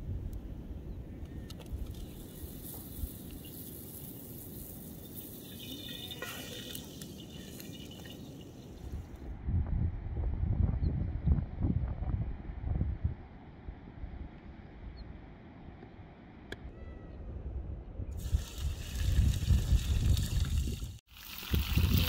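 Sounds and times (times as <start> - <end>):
wood fire crackling: 1.7 - 9.2
dough hissing in a pan: 2.2 - 8.2
wind buffeting microphone: 6.2 - 14.3, 17.5 - 22.0.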